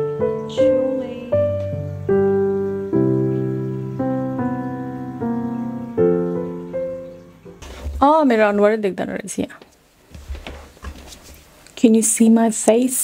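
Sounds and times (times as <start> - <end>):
keyboard chords: 0.0 - 7.6.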